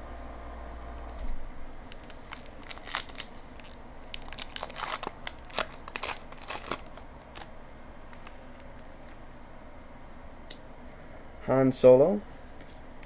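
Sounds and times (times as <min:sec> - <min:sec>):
card pack wrapper tearing: 0:01.9 - 0:07.5.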